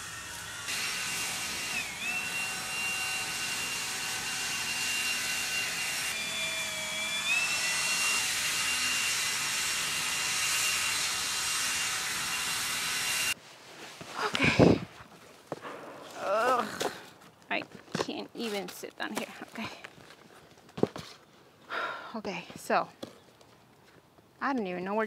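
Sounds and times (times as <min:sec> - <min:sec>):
leaf blower running: 0:00.0 - 0:13.4.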